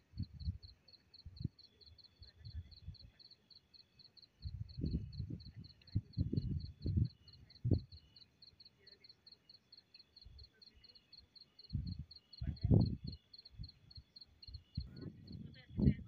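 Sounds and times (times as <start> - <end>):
cricket chirping: 0.0 - 16.0
muffled bumps and rumbles: 4.5 - 7.8, 14.8 - 16.0.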